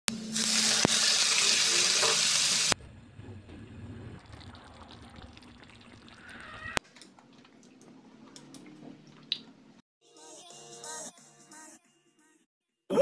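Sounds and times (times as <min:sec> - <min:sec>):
livers sizzling in a hot wok: 0:00.1 - 0:02.8.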